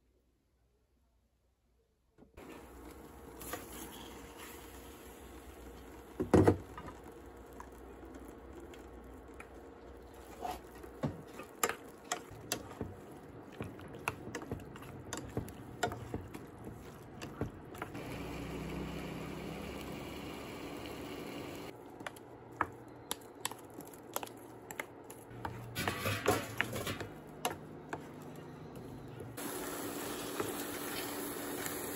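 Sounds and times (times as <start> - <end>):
wooden spoon scraping a pot: 10.1 - 18.0, 25.4 - 28.6.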